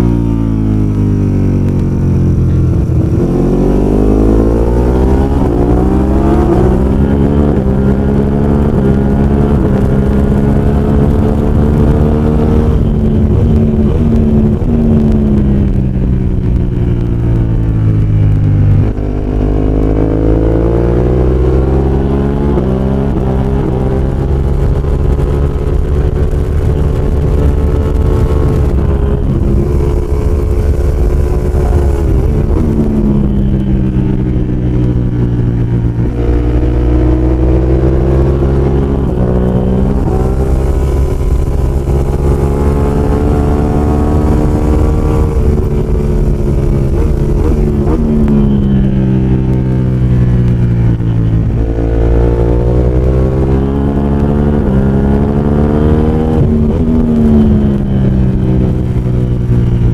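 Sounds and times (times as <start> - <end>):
motorcycle engine revving: 0.0 - 59.9
wind rushing: 23.6 - 59.9.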